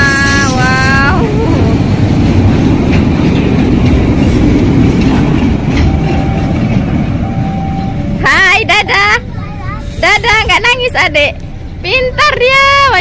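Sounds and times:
train wheels rumbling on rails: 0:00.0 - 0:13.0
wheels clacking over rail joints: 0:00.5 - 0:08.2.

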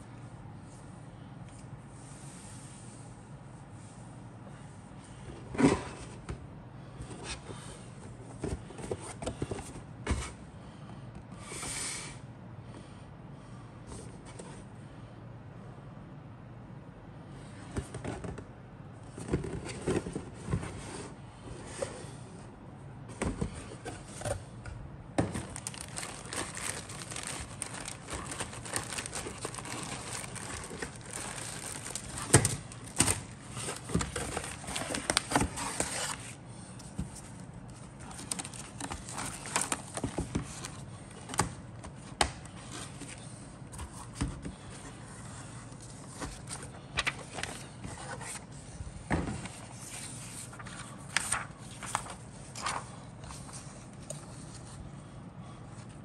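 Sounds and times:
paper and plastic rustling: 0:25.2 - 0:54.9.

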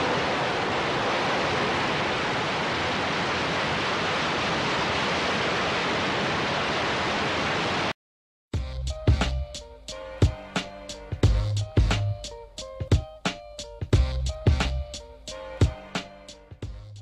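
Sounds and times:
rocket engines roaring: 0:00.0 - 0:07.1
music with drum hits: 0:08.6 - 0:17.0.

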